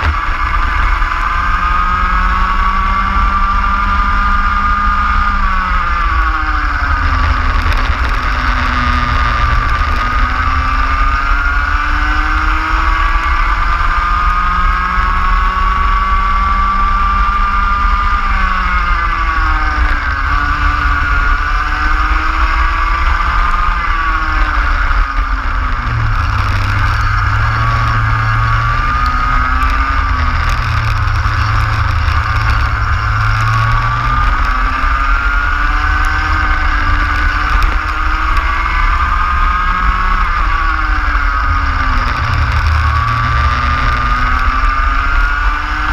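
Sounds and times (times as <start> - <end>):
racing kart engine: 0.0 - 45.9
wind rumble on microphone: 0.0 - 45.9.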